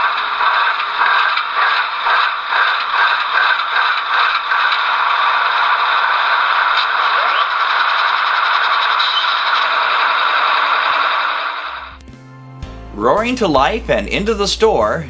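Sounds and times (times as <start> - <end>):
thin rattly engine through small speaker: 0.0 - 11.9.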